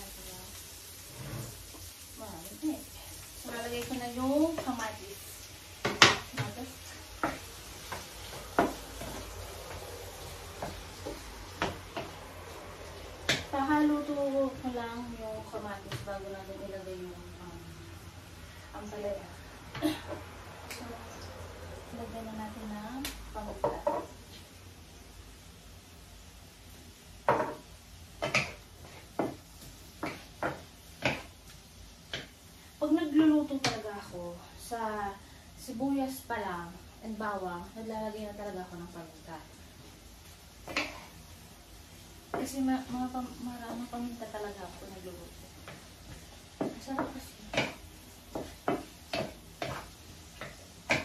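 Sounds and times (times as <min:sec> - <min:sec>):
vegetables sizzling: 0:00.0 - 0:51.0
wooden spatula knocking on pan: 0:05.8 - 0:09.9, 0:10.5 - 0:12.3, 0:13.2 - 0:13.5, 0:23.4 - 0:24.2, 0:27.2 - 0:31.4, 0:32.1 - 0:32.4, 0:42.3 - 0:42.6, 0:45.6 - 0:51.0.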